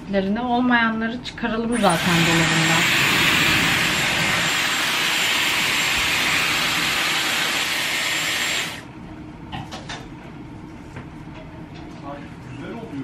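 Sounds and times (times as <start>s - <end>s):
hair styler blowing air: 1.8s - 8.8s.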